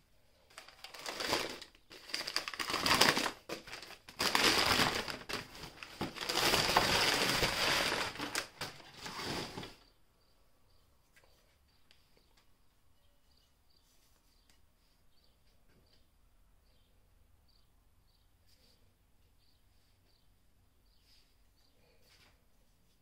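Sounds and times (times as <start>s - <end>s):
packing material crumpling: 0.5s - 9.8s.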